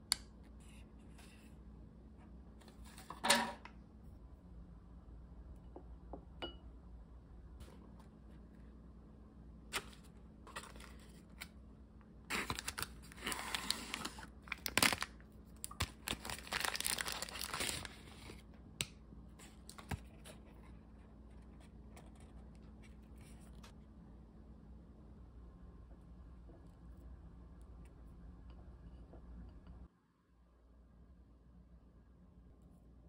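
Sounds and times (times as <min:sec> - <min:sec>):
plastic film crinkling and tearing: 0:12.3 - 0:18.4.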